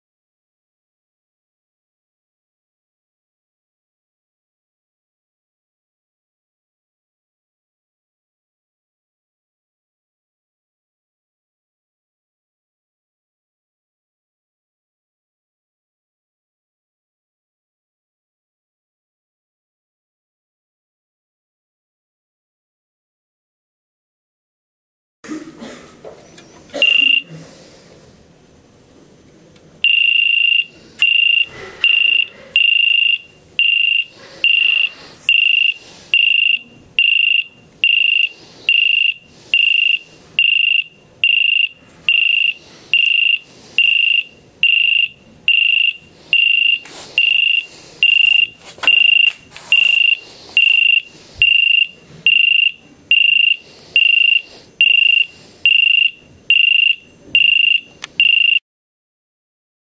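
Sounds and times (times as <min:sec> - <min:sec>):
high-pitched buzzer chirps: 0:26.8 - 0:27.3, 0:29.8 - 0:58.6.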